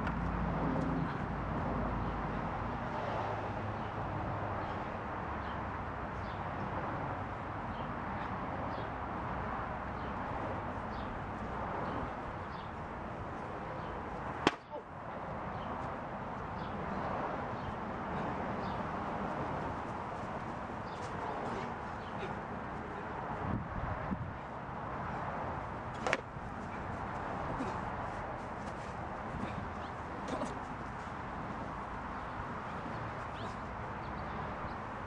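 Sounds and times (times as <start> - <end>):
outdoor background noise: 0.0 - 35.0
sharp smack on head: 26.0 - 26.2.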